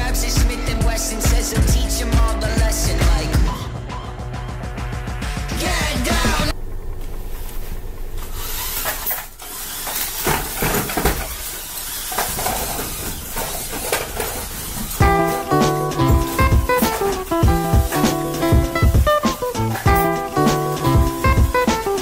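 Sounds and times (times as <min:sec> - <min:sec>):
robot driving hiss: 0:07.5 - 0:22.0
robot knocks and clatters: 0:08.6 - 0:20.0.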